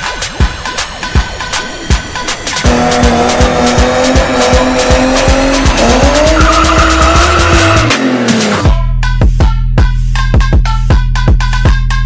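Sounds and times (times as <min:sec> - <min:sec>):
music with steady beat: 0:00.0 - 0:12.0
car engine revving high: 0:02.6 - 0:08.7
tires squealing: 0:02.6 - 0:08.7.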